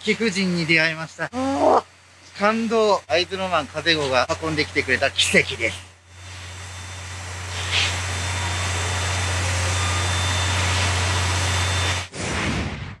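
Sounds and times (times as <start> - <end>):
strong low hum: 0.0 - 13.0
steam locomotive hissing: 2.4 - 12.1.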